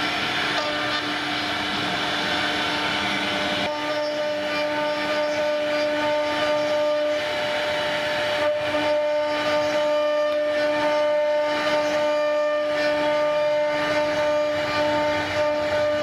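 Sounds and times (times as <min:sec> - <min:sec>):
cnc router spindle whine: 0:00.0 - 0:16.0
cutter hissing through wood: 0:00.0 - 0:16.0.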